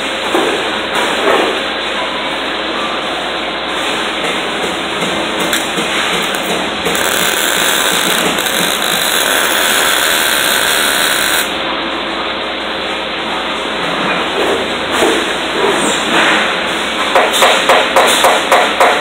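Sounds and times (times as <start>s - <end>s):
workshop noise: 0.0s - 19.0s
welding arc buzzing: 6.2s - 11.6s.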